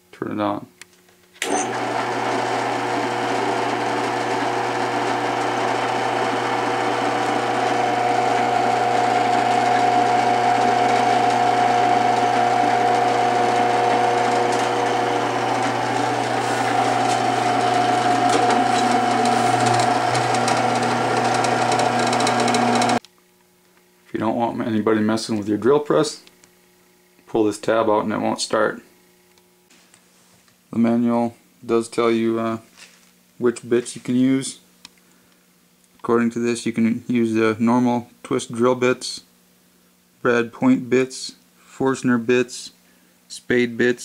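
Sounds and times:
drill press motor humming: 1.4s - 23.0s.

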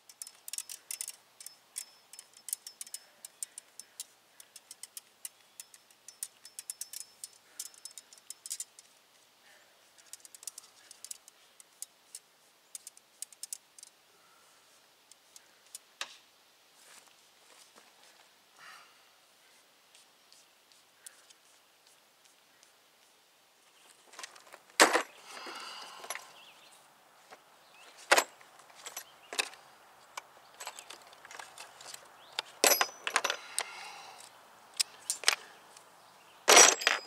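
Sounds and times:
light metallic clicking: 0.0s - 8.9s.

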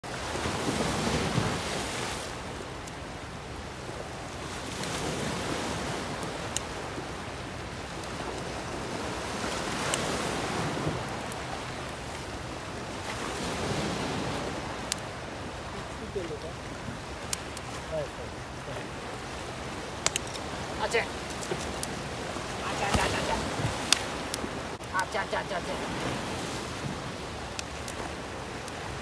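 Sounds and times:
surf washing over rocks: 0.0s - 29.0s
faint sharp clicks: 6.2s - 6.8s, 9.8s - 10.2s, 14.8s - 15.0s, 17.2s - 17.8s, 20.0s - 20.5s, 22.9s - 24.9s, 27.5s - 28.0s.

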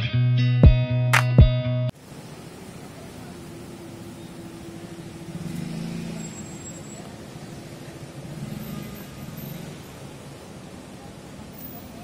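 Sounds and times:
road traffic passing: 1.9s - 12.0s
loud vehicle passing: 3.2s - 12.0s.

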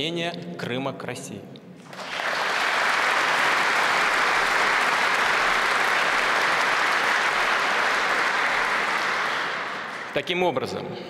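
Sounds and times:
audience applauding: 1.8s - 10.6s.

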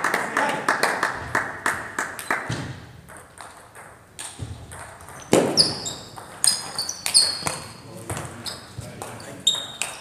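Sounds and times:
hand claps: 0.0s - 2.6s
table tennis ball bouncing: 2.4s - 8.4s, 9.0s - 10.0s.

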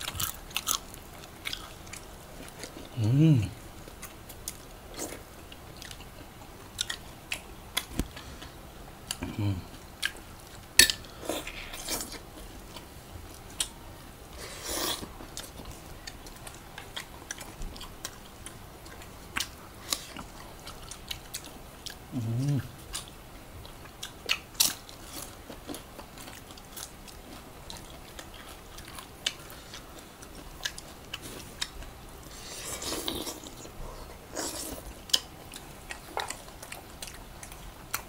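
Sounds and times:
biting and chewing: 0.0s - 3.0s, 14.5s - 38.0s
person humming mm: 2.9s - 3.6s, 9.2s - 9.8s, 22.1s - 22.8s.

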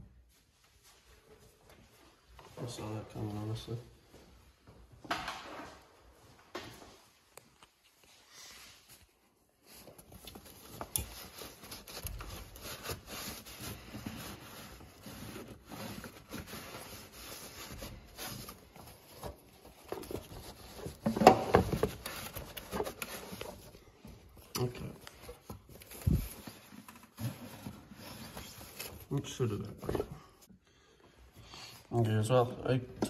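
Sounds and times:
hands rubbing and scraping hoses: 7.5s - 30.2s.

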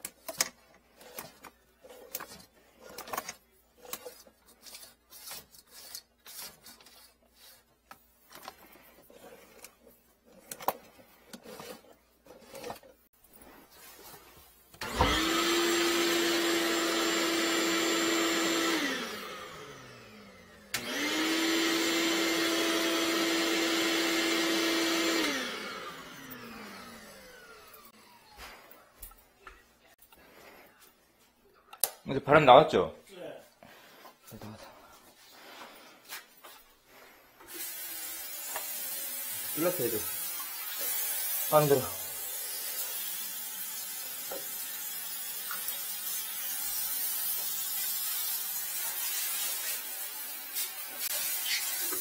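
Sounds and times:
electric blower humming: 14.8s - 28.8s.

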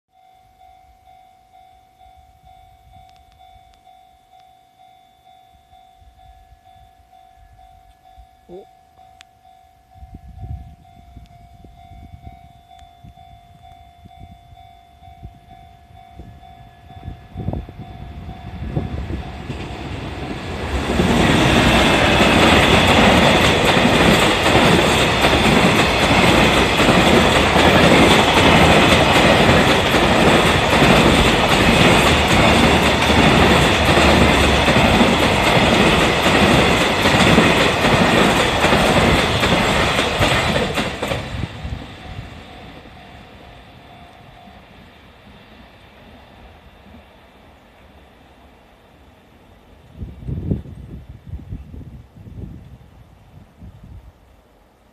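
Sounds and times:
train wheels clacking over rails: 18.9s - 43.4s.

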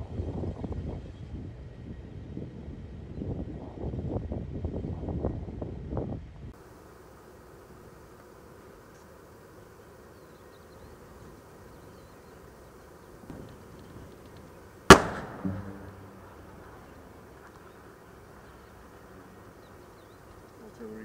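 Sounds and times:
low background hiss: 6.6s - 21.0s
loud bang with rolling echo: 14.9s - 17.0s.

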